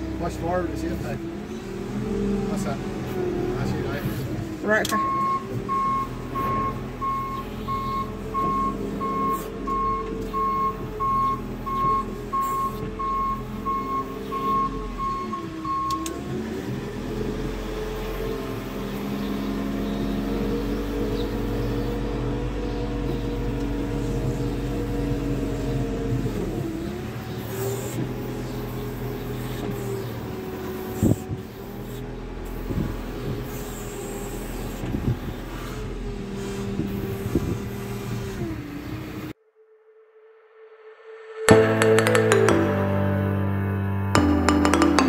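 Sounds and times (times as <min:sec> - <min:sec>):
diesel loader engine: 0:00.0 - 0:39.4
reversing beeper: 0:04.9 - 0:16.0.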